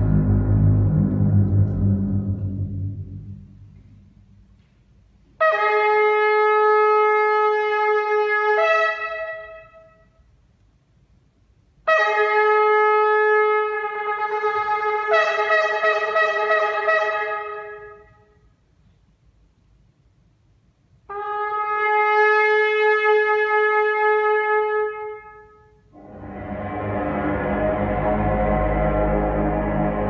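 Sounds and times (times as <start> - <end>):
shofar blasts: 5.4 - 10.1, 11.9 - 18.4, 21.1 - 30.0.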